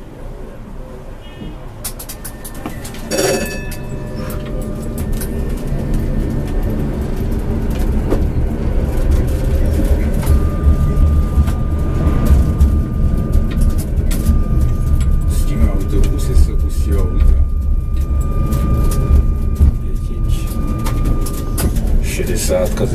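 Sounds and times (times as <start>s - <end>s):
tram rumbling on rails: 0.0s - 22.9s
steady high whine: 1.8s - 22.9s
brief ringing tone: 2.2s - 7.1s, 9.6s - 22.9s.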